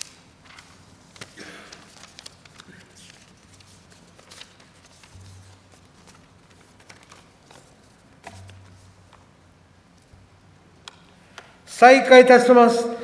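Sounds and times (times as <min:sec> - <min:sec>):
faint clicks and rustles: 0:00.0 - 0:09.3.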